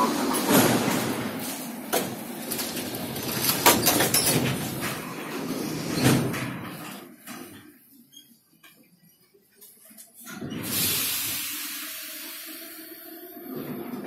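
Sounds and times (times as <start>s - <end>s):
sliding doors closing with thud: 0.0s - 7.7s, 10.2s - 11.4s, 13.4s - 14.0s
train and platform noise: 0.0s - 14.0s.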